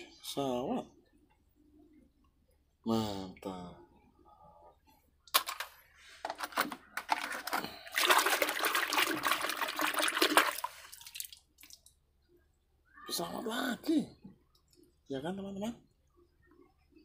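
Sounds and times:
water sloshing in a metal basin: 7.1s - 11.9s.

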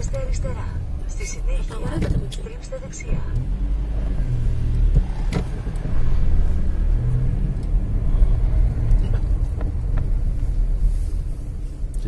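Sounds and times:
car engine and tyres rumbling: 0.0s - 12.0s.

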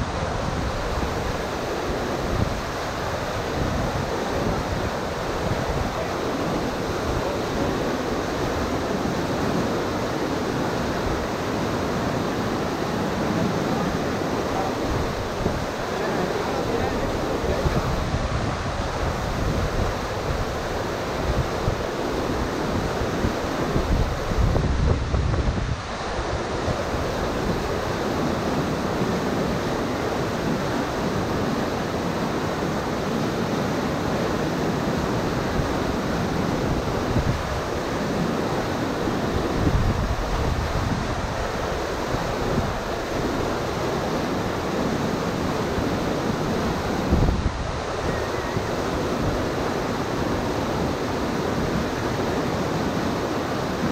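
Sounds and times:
water rushing over rocks: 0.0s - 53.9s
wind buffeting microphone: 13.4s - 31.4s, 35.1s - 52.9s.

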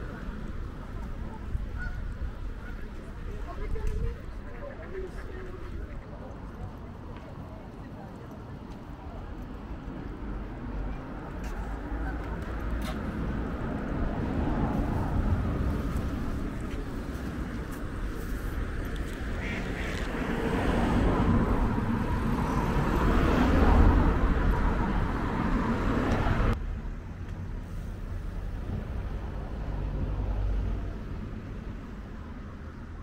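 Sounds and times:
ducks quacking: 19.3s - 20.6s.

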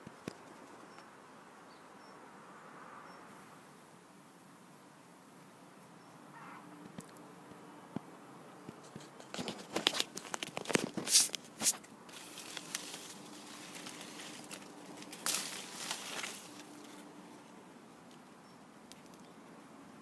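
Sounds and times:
leaves and twigs rustling: 8.6s - 19.6s.

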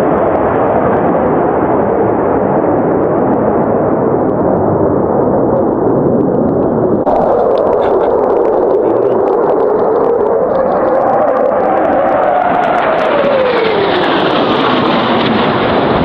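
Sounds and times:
fighter jet passing: 0.0s - 16.0s
jet pass with crackles: 0.0s - 16.0s.

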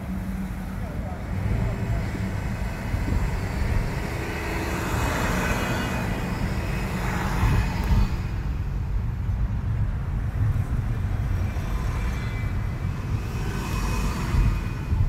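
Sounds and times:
bus passing: 0.0s - 15.0s.

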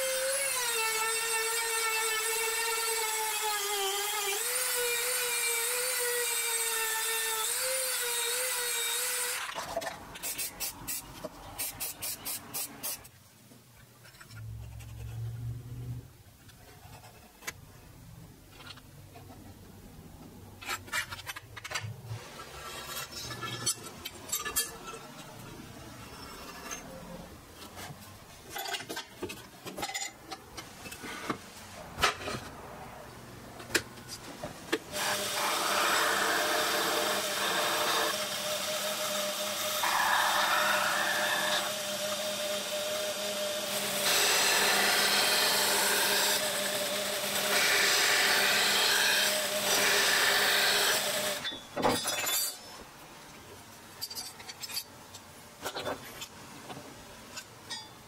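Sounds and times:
hand tools scraping metal: 20.6s - 25.3s.

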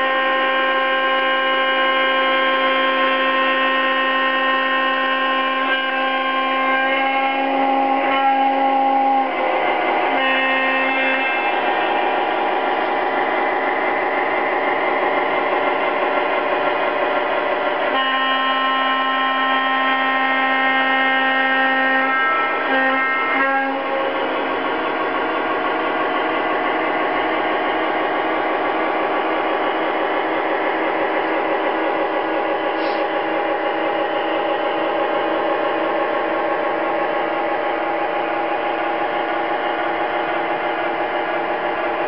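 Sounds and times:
model train electronic horn: 0.0s - 42.0s.

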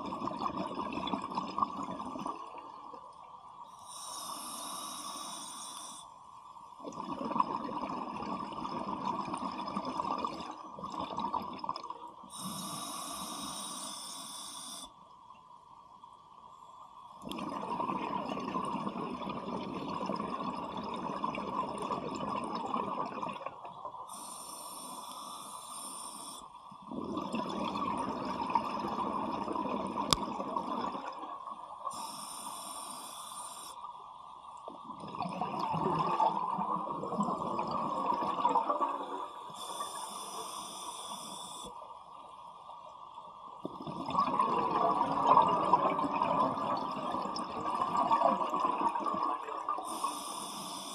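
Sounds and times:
exhaled bubbles underwater: 0.0s - 3.1s, 6.8s - 13.5s, 17.2s - 24.4s, 26.2s - 32.3s, 34.6s - 41.7s, 43.6s - 50.9s
regulator hissing inhalation: 3.7s - 6.2s, 12.3s - 15.0s, 24.1s - 26.5s, 31.9s - 33.9s, 39.4s - 41.8s, 49.8s - 50.9s.

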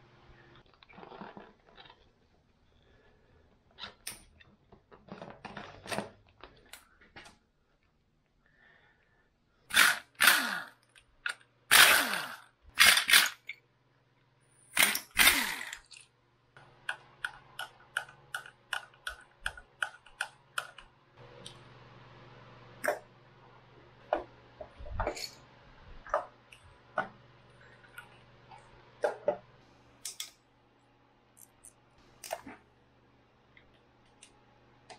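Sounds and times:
cordless power driver whirring: 14.8s - 15.8s.

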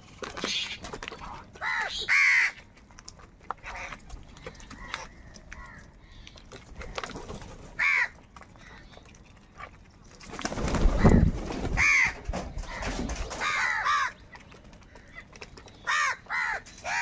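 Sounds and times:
crows cawing: 1.6s - 2.6s, 4.8s - 5.9s, 7.8s - 8.8s, 11.0s - 14.2s, 15.8s - 17.0s
crows wingbeats taking off: 10.2s - 14.2s.

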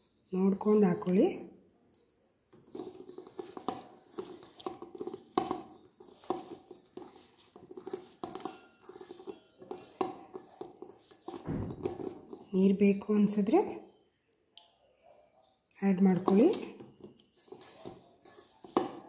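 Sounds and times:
potatoes tossed in metal bowl: 2.6s - 13.6s, 16.0s - 19.0s.

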